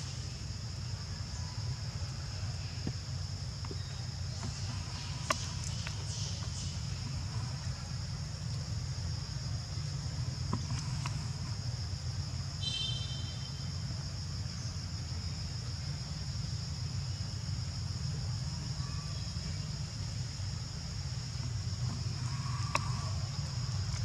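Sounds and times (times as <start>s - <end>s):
high-pitched insect drone: 11.2s - 24.0s.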